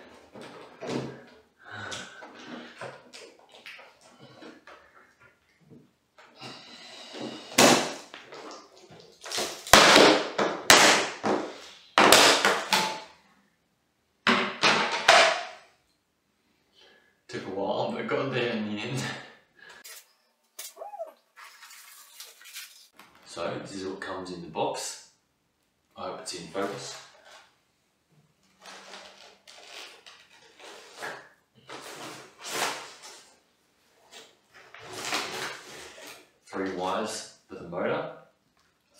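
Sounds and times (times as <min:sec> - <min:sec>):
tape tearing: 0:19.8 - 0:22.9, 0:28.6 - 0:31.2.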